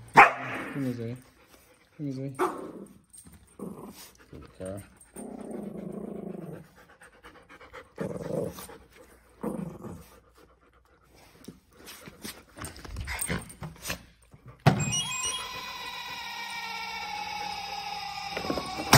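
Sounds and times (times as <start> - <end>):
dogs panting: 0.8 - 2.4, 3.1 - 9.4, 10.0 - 14.6.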